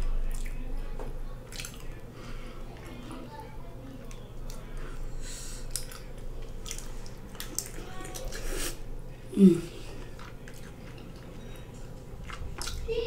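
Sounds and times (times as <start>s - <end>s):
wet chewing and smacking: 0.2s - 0.7s, 1.4s - 2.1s, 2.7s - 4.9s, 5.6s - 8.8s, 9.7s - 13.0s
person humming: 9.3s - 9.8s.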